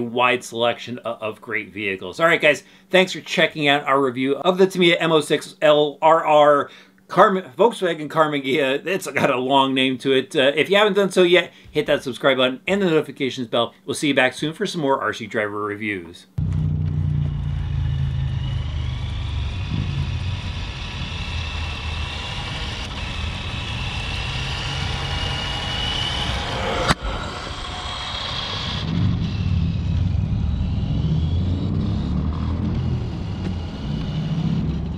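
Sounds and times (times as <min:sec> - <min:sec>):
electric motor whine: 0:16.4 - 0:34.9.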